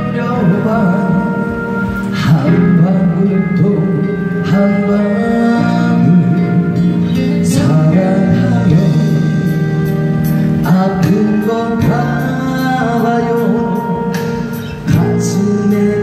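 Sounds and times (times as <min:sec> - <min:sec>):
instrumental backing music: 0:00.0 - 0:16.0
man singing into microphone: 0:00.0 - 0:16.0.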